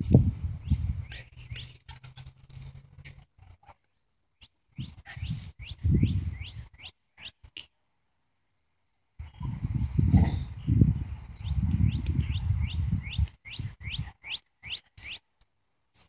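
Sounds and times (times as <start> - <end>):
footsteps on dry ground: 0.0 - 1.7
bird chirping: 0.6 - 2.8, 3.6 - 7.6, 8.9 - 15.3.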